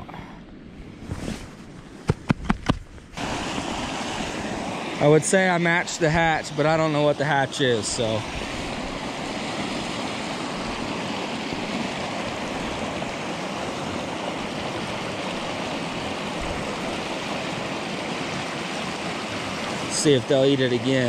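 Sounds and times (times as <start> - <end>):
river rushing over rocks: 3.2 - 21.0.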